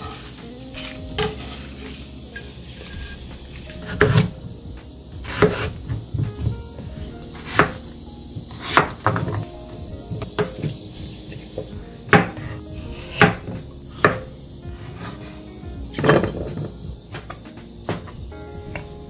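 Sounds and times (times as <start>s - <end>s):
utensils and dishes clattering: 0.0s - 4.3s, 15.9s - 18.1s
soft background music: 0.0s - 19.0s.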